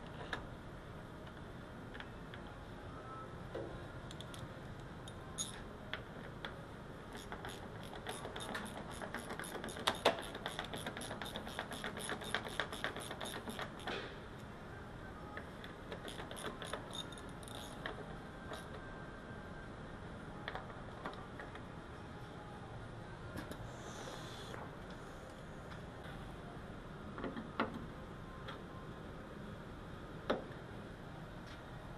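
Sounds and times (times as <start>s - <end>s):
hand ratchet clicking: 7.2s - 14.0s, 15.9s - 18.7s.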